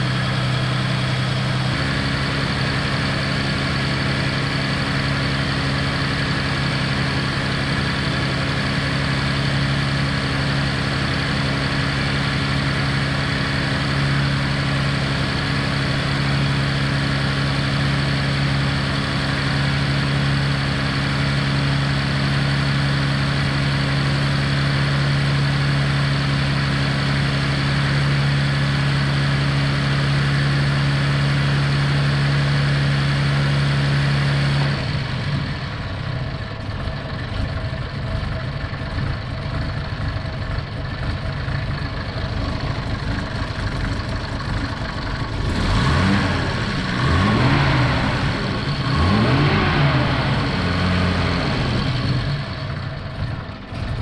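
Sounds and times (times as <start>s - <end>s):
car engine fast idle: 34.6s - 54.0s.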